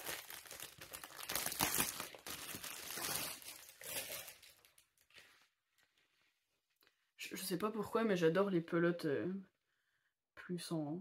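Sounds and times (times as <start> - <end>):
plastic packaging crinkling: 0.0 - 5.4.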